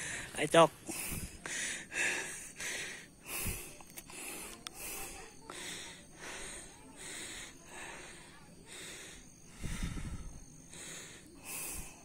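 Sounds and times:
person breathing: 0.0s - 12.0s
faint clicks: 3.8s - 4.8s.

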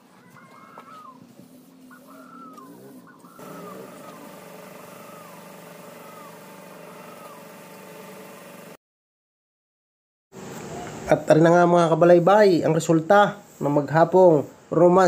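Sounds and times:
bird chirping: 1.8s - 8.1s
air compressor humming and hissing: 3.3s - 8.8s.

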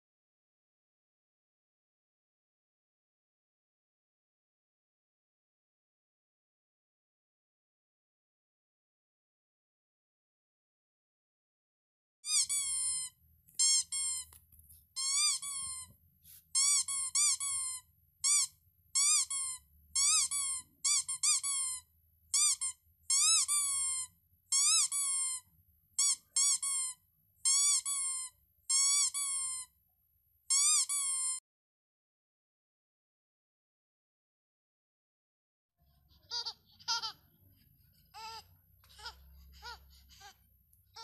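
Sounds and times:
squeaky dog toy squeaks: 12.3s - 29.7s, 30.4s - 31.4s, 36.2s - 37.2s, 38.1s - 41.0s.

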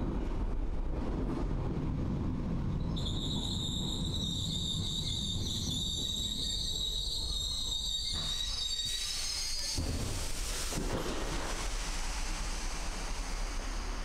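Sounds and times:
train rumbling: 0.0s - 14.0s
high-pitched wheel squeal: 2.8s - 9.9s.

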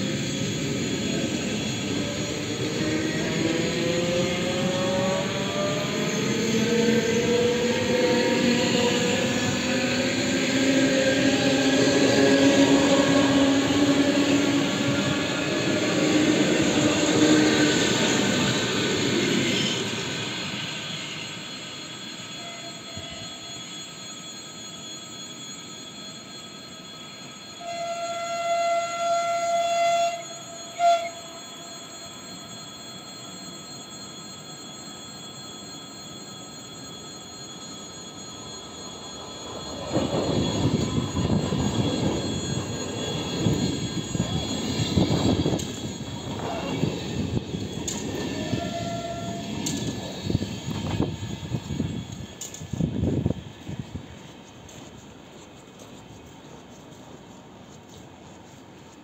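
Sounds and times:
train wheels rumbling on rails: 0.0s - 59.0s
train horn: 22.3s - 23.6s, 27.5s - 32.5s, 47.9s - 50.0s.

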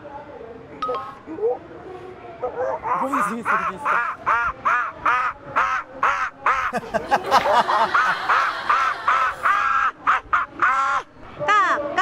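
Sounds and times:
man imitating monkey hoots: 2.9s - 4.2s.

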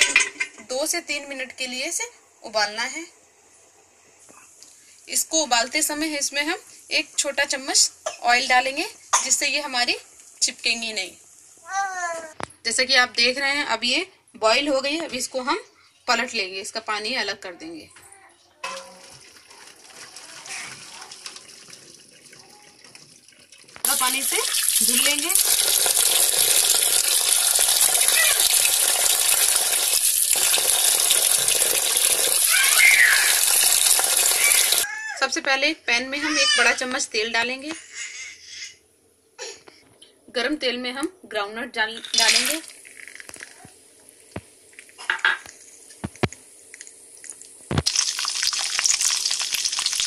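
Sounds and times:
peanuts sizzling in hot oil: 4.6s - 11.7s, 23.8s - 34.9s, 42.0s - 50.0s
tap water running into bowl: 18.6s - 34.8s, 42.0s - 43.7s, 44.3s - 50.0s
water splashing on noodles: 18.6s - 34.8s, 46.7s - 50.0s.

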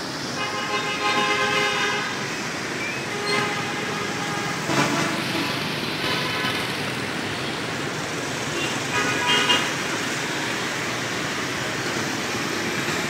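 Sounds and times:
street traffic: 0.0s - 13.0s
horns honking: 3.0s - 6.6s, 8.6s - 9.7s.

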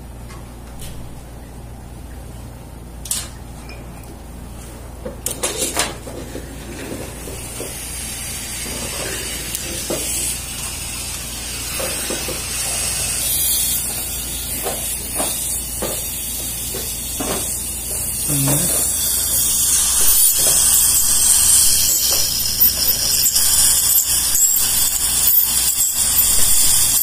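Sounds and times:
low machine hum: 0.0s - 27.0s
metal instruments clinking: 8.7s - 27.0s.

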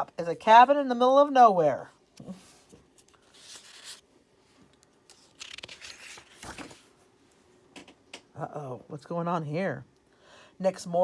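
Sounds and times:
book page turning: 2.2s - 7.0s.

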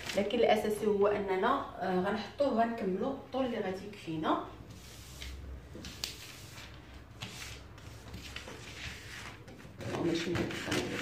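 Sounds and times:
paper rustling and sliding: 4.7s - 11.0s
scissors cutting paper: 7.2s - 11.0s.

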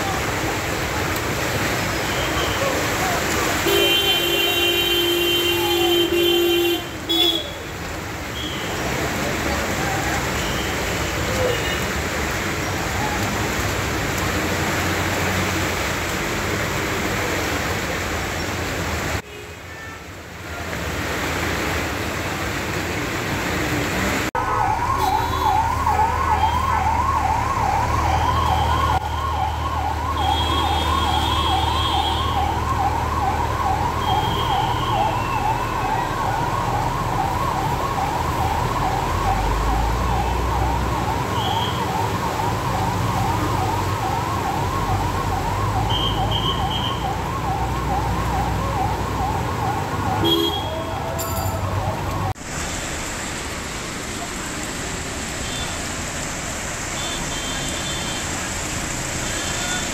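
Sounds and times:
low rumble of traffic: 0.0s - 59.9s
emergency siren yelping: 24.4s - 52.4s.

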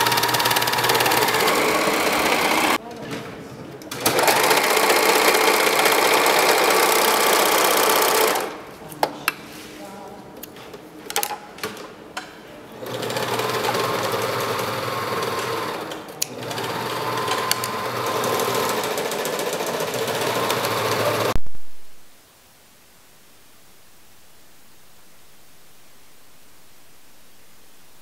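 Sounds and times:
overlock sewing machine running: 0.0s - 2.8s, 3.9s - 8.6s, 12.8s - 21.4s
faint hiss: 21.4s - 28.0s.

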